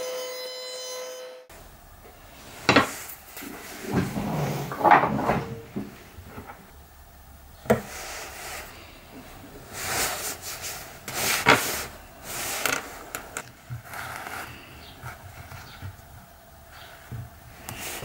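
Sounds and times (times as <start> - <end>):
wood scraping against wood: 2.6 - 6.7.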